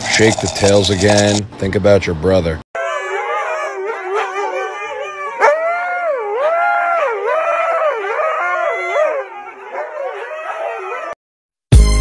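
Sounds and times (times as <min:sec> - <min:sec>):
dog howling: 0:02.8 - 0:11.2.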